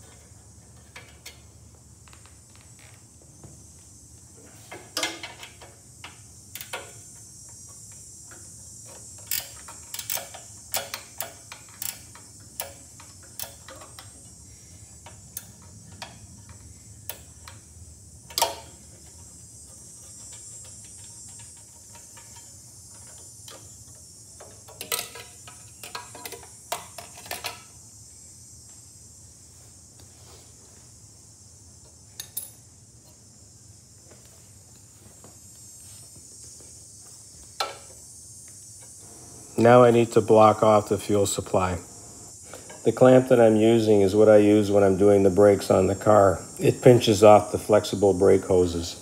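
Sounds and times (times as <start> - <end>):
faint steady hum: 0.0 - 49.0
ratcheting wrench clicking: 5.0 - 17.6, 18.3 - 27.6.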